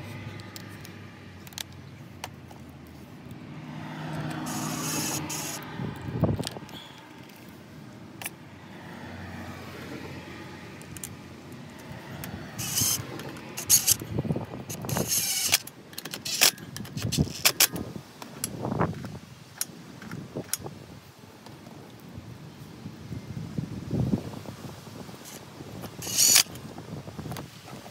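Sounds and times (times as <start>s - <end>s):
socket tool clicking on bolts: 10.8s - 14.0s.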